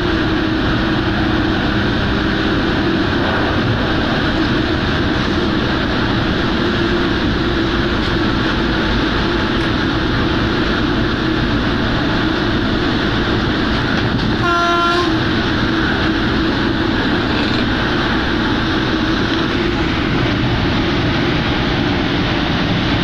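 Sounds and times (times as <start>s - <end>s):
locomotive cab running noise: 0.0s - 23.0s
short horn blast: 14.4s - 15.2s.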